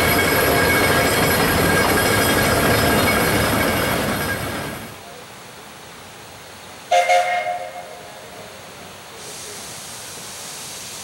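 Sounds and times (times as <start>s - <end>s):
steady steam hiss: 0.0s - 11.0s
steam whistle toot: 6.9s - 8.0s.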